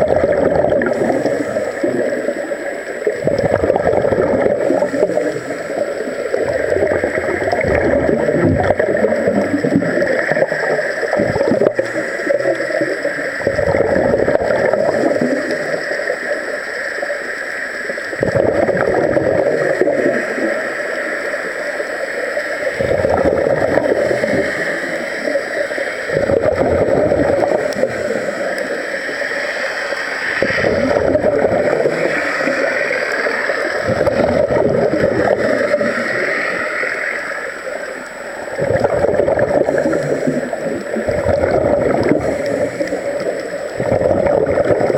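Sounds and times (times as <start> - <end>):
air bubbles rising underwater: 0.0 - 44.9.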